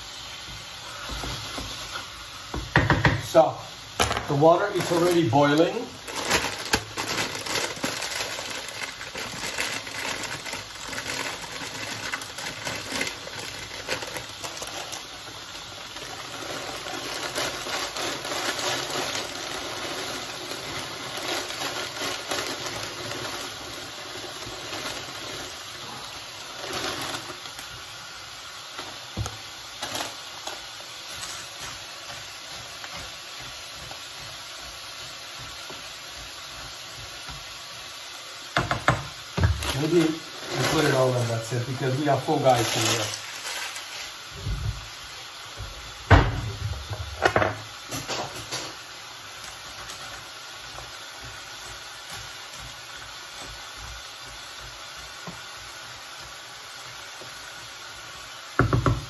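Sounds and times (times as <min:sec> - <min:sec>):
pot of water boiling: 0:00.0 - 0:59.0
plastic bag crinkling: 0:03.2 - 0:35.0, 0:39.4 - 0:45.0, 0:45.9 - 0:55.1
dry noodles poured into pot: 0:03.3 - 0:27.8, 0:39.6 - 0:44.2.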